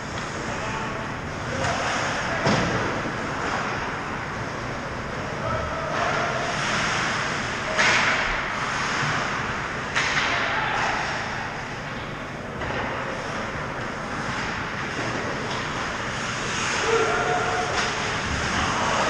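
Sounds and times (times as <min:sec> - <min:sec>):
steady rink hiss: 0:06.1 - 0:11.3, 0:13.1 - 0:19.0.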